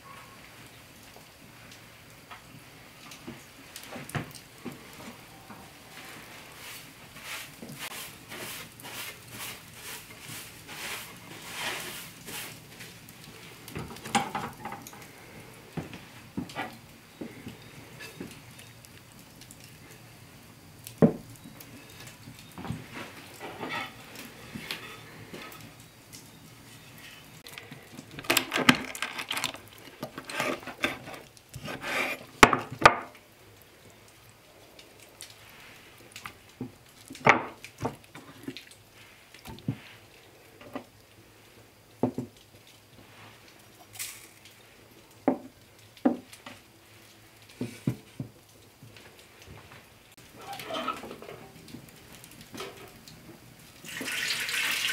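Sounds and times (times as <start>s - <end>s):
scraping and clattering: 27.4s - 33.0s
knocks and handling noises: 27.5s - 33.1s
knife cutting on wooden board: 30.2s - 32.2s.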